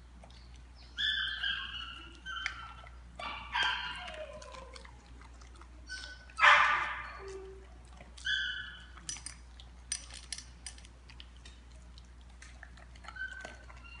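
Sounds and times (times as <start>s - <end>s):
dog whining: 1.0s - 5.0s, 5.8s - 9.0s, 13.0s - 14.0s
kibble clinking in metal bowls: 8.8s - 10.9s.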